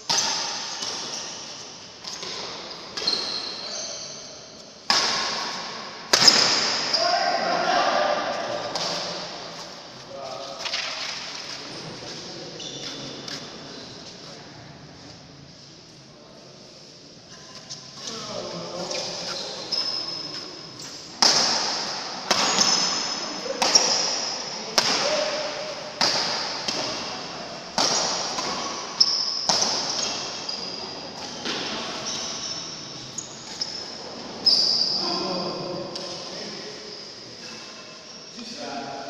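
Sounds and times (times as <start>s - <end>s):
rackets striking shuttlecock: 0.0s - 3.3s, 4.8s - 6.9s, 21.2s - 31.9s
shoes squeaking on court: 0.1s - 4.8s, 8.3s - 14.3s, 17.4s - 21.1s, 22.4s - 23.0s, 27.8s - 35.2s.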